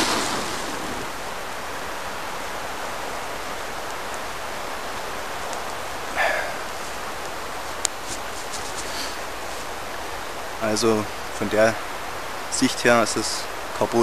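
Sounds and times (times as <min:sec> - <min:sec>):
steady outdoor hiss: 0:00.0 - 0:14.0
short rustle: 0:07.7 - 0:09.8.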